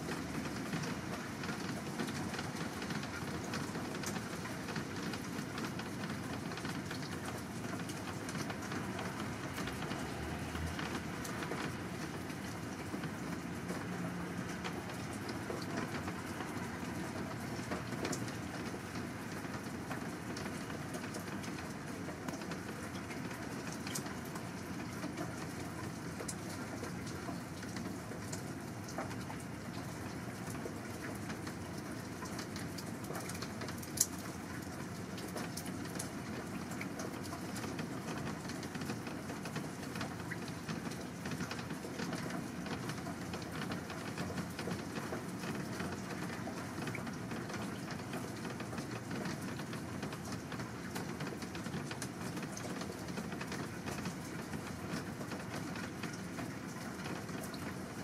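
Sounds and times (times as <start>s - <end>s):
rushing water: 7.0s - 19.9s.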